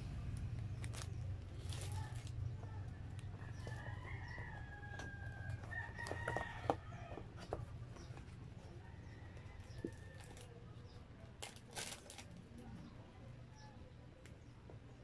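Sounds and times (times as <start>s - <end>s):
food packaging crinkling: 0.8s - 2.4s, 11.4s - 12.4s.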